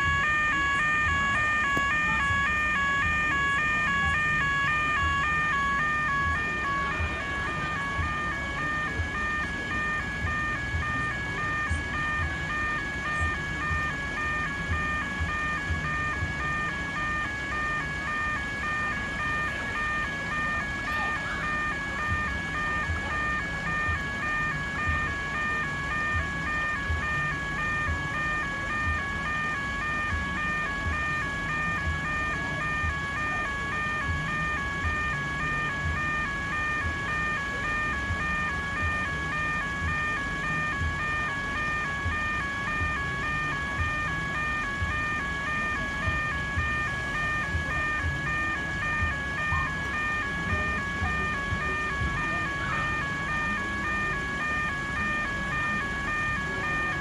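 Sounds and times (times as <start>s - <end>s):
level crossing warning bells: 0.0s - 57.0s.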